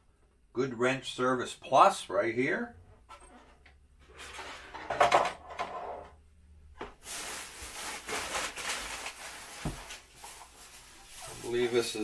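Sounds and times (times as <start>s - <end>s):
packing material rustling: 7.0s - 12.0s.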